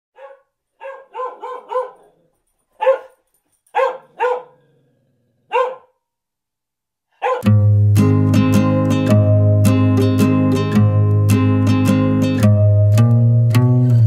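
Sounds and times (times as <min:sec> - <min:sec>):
puppy yipping: 0:00.2 - 0:02.1, 0:02.8 - 0:04.5, 0:05.5 - 0:05.9, 0:07.2 - 0:07.5.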